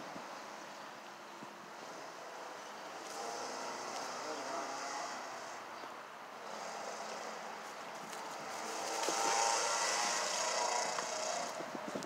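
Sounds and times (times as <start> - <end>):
vehicle passing over bridge: 8.3 - 11.6.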